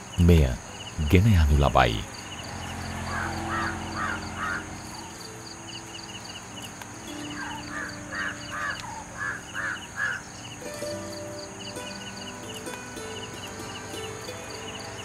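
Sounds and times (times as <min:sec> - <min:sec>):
high insect drone: 0:00.0 - 0:15.0
bird making rough calls: 0:03.0 - 0:05.2, 0:07.3 - 0:10.3.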